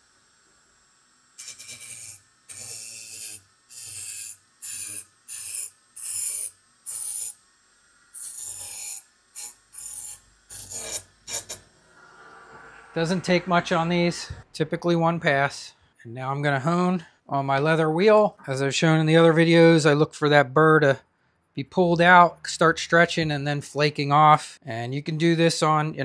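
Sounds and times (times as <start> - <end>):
wire wheel brushing knife edge: 1.4 - 7.4, 8.2 - 11.6.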